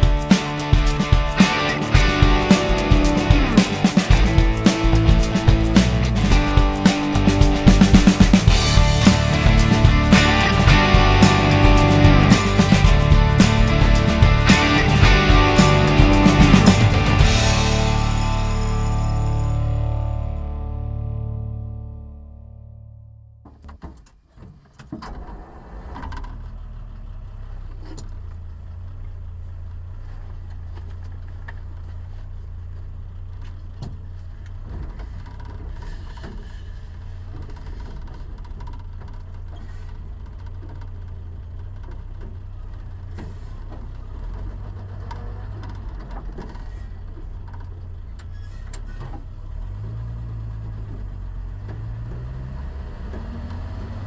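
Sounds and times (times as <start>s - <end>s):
vehicle engine rumbling: 0.0s - 54.0s
body rattle clicks and knocks: 37.2s - 48.3s.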